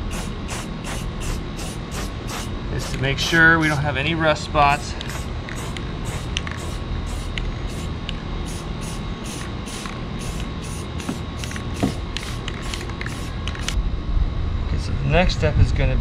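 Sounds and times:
aerosol spray can hissing: 0.0 - 3.0, 5.0 - 13.8.

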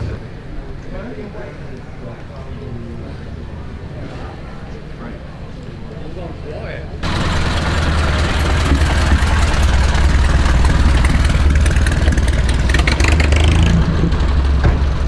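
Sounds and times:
vehicle engine idling: 7.0 - 15.0.

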